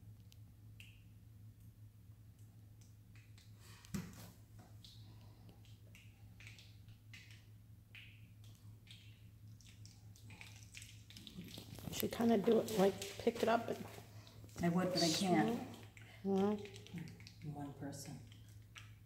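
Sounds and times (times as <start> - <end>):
low steady hum: 0.0 - 19.0
faint clicks and ticks: 15.6 - 19.0.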